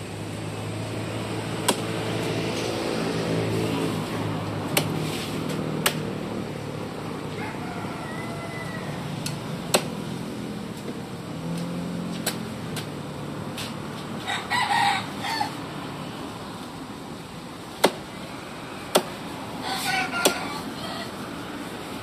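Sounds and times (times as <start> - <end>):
cleaver chopping on wooden block: 1.6 - 1.9, 4.7 - 5.0, 5.8 - 6.1, 9.7 - 10.0, 17.8 - 18.1, 18.9 - 19.2, 20.2 - 20.5
rooster crowing: 7.3 - 9.2, 14.2 - 15.6, 19.6 - 21.2
chickens calling: 19.6 - 21.3.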